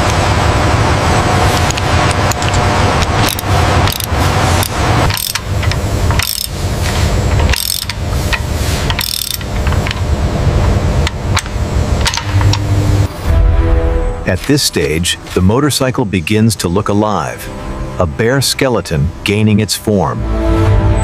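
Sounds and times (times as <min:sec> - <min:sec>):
low machinery hum: 0:00.0 - 0:21.0
ratchet and wrench clicks: 0:03.1 - 0:06.6, 0:07.3 - 0:10.0.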